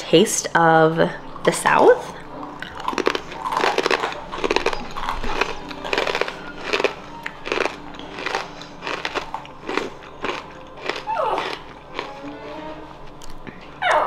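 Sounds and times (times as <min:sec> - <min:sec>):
person crunching a chip: 0:02.6 - 0:13.4.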